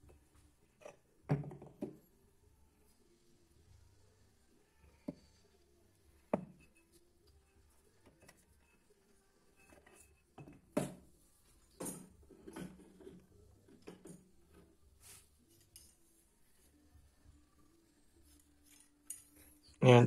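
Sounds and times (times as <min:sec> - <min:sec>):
metal tools clinking: 0:18.3 - 0:19.8.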